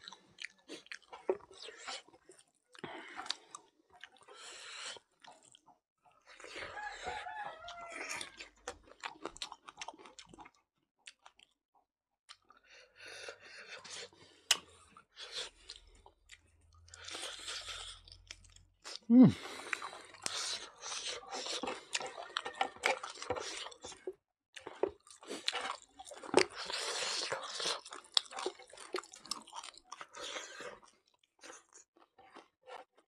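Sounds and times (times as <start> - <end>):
man chewing and smacking: 0.0 - 11.6, 12.3 - 33.0
man humming: 19.1 - 19.5.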